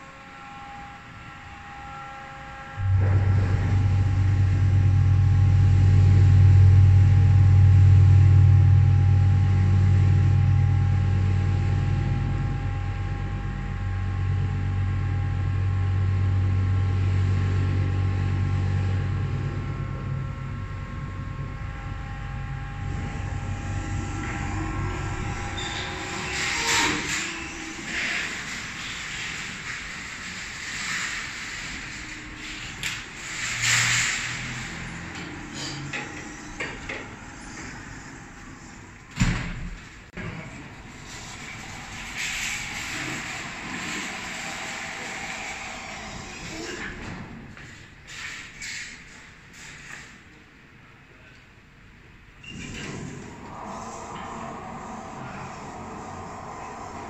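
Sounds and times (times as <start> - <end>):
high-pitched motor whine: 0.0 - 29.4
lift pump motor humming: 0.0 - 30.3.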